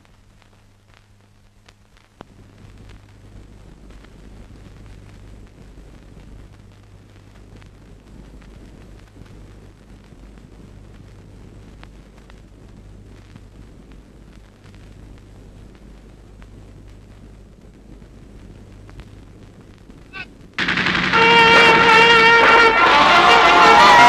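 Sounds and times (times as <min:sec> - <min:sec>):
grass fire crackling: 0:00.0 - 0:24.0
low hum and hiss: 0:00.0 - 0:24.0
sharp pops: 0:19.7 - 0:23.9.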